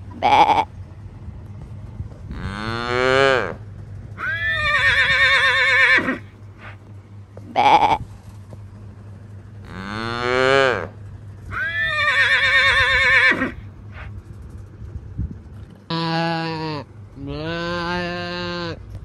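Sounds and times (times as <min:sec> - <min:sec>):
farm animal calls: 0:00.0 - 0:00.8, 0:02.3 - 0:08.3, 0:09.5 - 0:14.2, 0:15.9 - 0:19.0.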